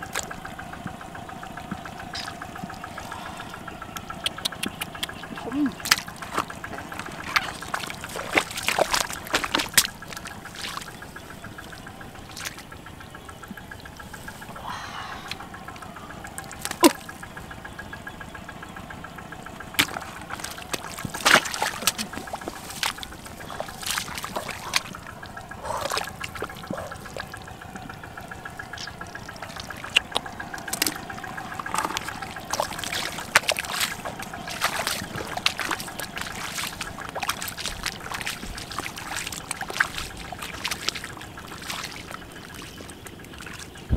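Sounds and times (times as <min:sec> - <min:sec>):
mud squelching: 0:00.0 - 0:43.9
muddy water splashing: 0:00.0 - 0:43.9
sharp splats in mud: 0:01.7 - 0:03.4, 0:04.0 - 0:11.0, 0:11.6 - 0:12.7, 0:16.4 - 0:17.3, 0:19.6 - 0:27.8, 0:28.4 - 0:43.9.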